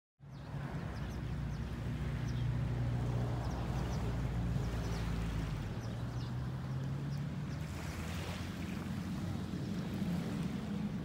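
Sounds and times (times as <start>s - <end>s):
small birds chirping: 0.2s - 8.0s.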